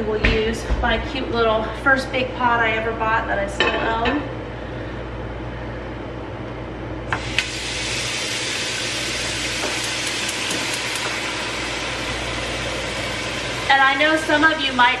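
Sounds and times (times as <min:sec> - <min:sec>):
water pouring into metal pot: 0:07.2 - 0:13.7.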